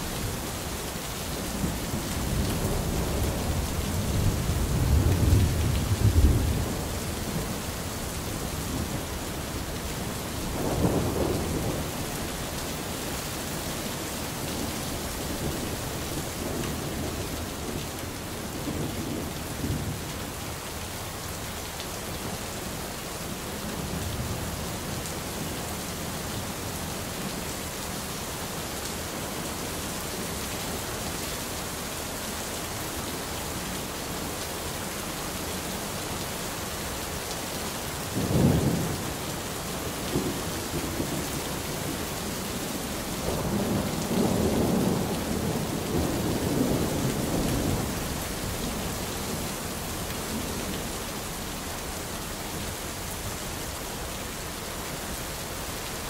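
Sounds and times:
steady rain: 0:00.0 - 0:56.0
rolling thunder: 0:01.6 - 0:07.5.

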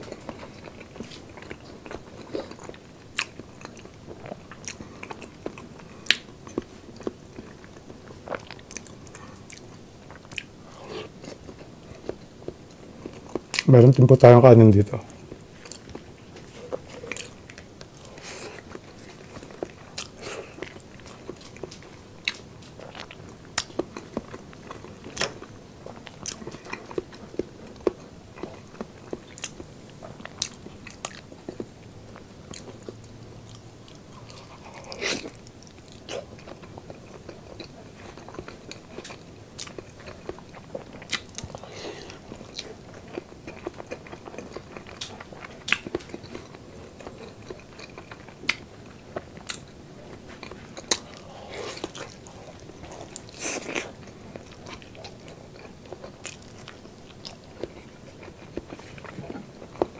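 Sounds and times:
person chewing: 0:00.0 - 0:13.7, 0:15.2 - 0:59.9.

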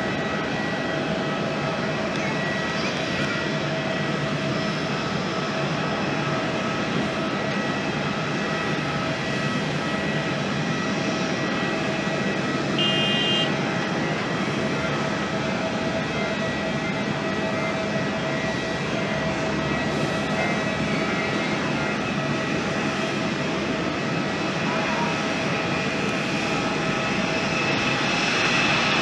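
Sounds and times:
jet engines running: 0:00.0 - 0:29.0
brief high tone: 0:12.8 - 0:13.6.

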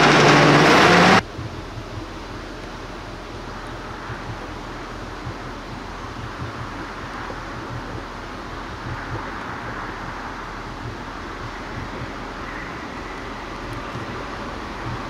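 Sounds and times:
truck engine running: 0:00.0 - 0:15.0
wind on microphone: 0:01.2 - 0:15.0.

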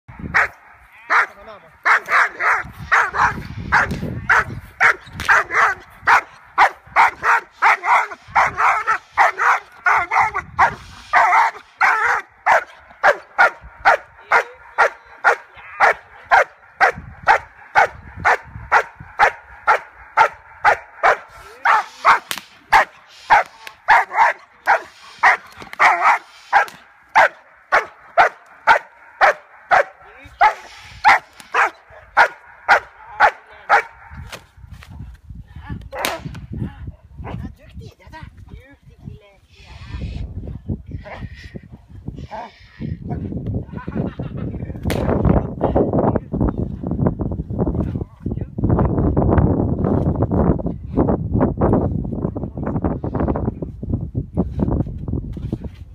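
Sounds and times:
dog barking rapidly: 0:00.3 - 0:34.0.

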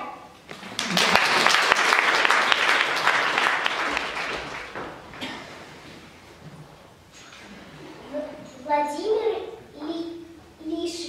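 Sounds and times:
audience applauding: 0:00.5 - 0:05.2.

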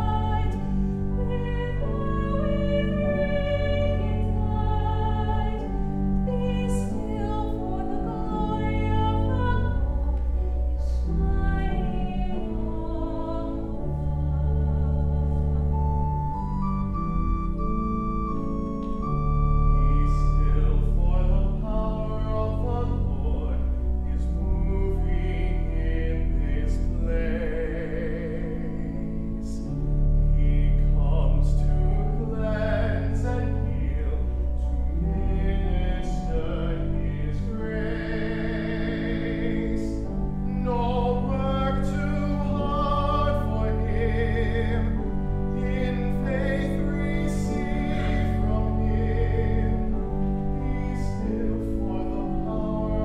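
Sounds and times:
organ chords: 0:00.0 - 0:53.0
man singing operatically: 0:19.8 - 0:29.6, 0:30.4 - 0:53.0.

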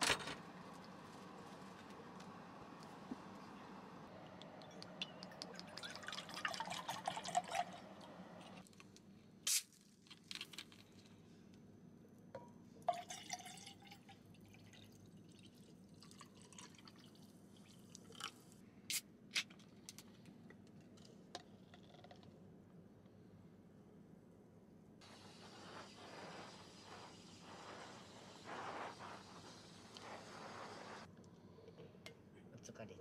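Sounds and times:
liquid pouring into metal tumbler: 0:04.8 - 0:08.0, 0:12.8 - 0:18.4.

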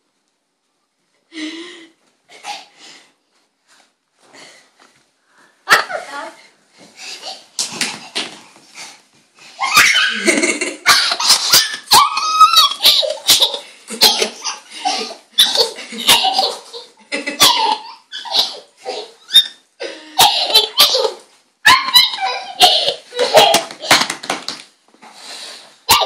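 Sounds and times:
toddler giggling: 0:09.8 - 0:19.6.

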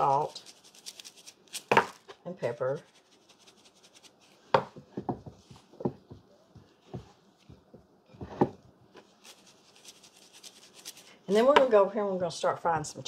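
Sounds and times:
flour rustling: 0:00.0 - 0:04.8, 0:08.8 - 0:11.5.

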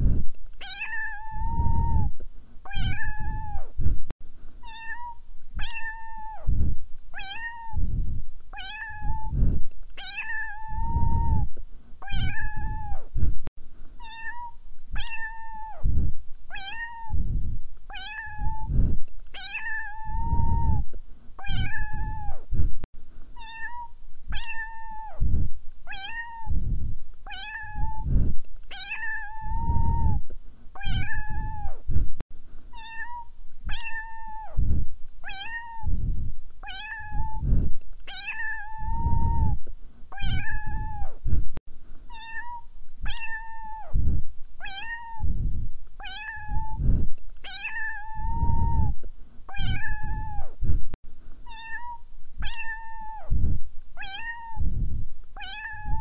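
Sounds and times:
cat meowing: 0:00.6 - 0:02.1, 0:02.7 - 0:03.7, 0:04.6 - 0:06.5, 0:07.2 - 0:07.8, 0:08.6 - 0:09.4, 0:10.0 - 0:13.0, 0:14.0 - 0:15.8, 0:16.5 - 0:17.2, 0:17.9 - 0:18.7, 0:19.4 - 0:20.8, 0:21.4 - 0:22.4, 0:23.4 - 0:25.2, 0:25.9 - 0:26.5, 0:27.3 - 0:28.1, 0:28.7 - 0:30.2, 0:30.8 - 0:31.8, 0:32.7 - 0:34.6, 0:35.2 - 0:35.9, 0:36.6 - 0:37.4, 0:38.1 - 0:39.6, 0:40.2 - 0:41.2, 0:42.1 - 0:44.0, 0:44.6 - 0:45.3, 0:46.0 - 0:46.8, 0:47.4 - 0:50.6, 0:51.5 - 0:53.3, 0:54.0 - 0:54.6, 0:55.4 - 0:56.0.

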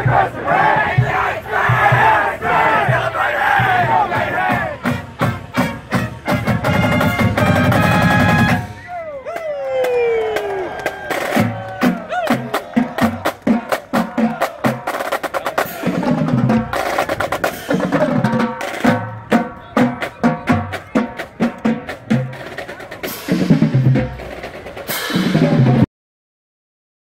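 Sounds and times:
bass drum beats: 0:00.0 - 0:08.6
tenor drums: 0:00.0 - 0:25.9
snare drum rolls: 0:02.8 - 0:08.8.

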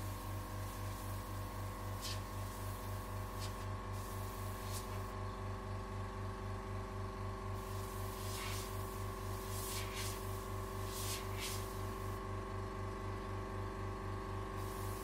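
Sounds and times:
airbrush spraying hiss: 0:00.0 - 0:05.1, 0:07.6 - 0:12.2, 0:14.6 - 0:15.0
air puffs: 0:01.9 - 0:05.1, 0:07.6 - 0:12.2.

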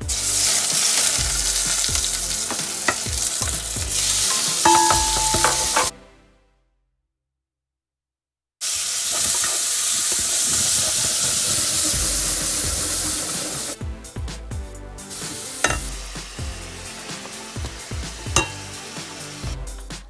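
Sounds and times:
pot of soup boiling: 0:08.7 - 0:13.8.

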